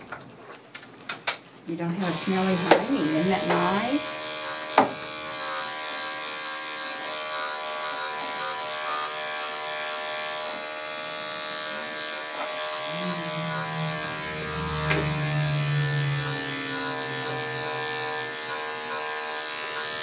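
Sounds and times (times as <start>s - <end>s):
electric clippers running: 2.0s - 20.0s
low hum: 12.6s - 19.2s.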